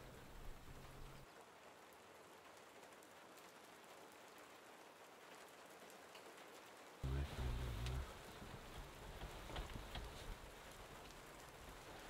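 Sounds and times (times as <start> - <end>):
rain on a vehicle roof: 0.0 - 12.0
raindrop ticks: 0.0 - 12.0
low hum: 7.0 - 10.5.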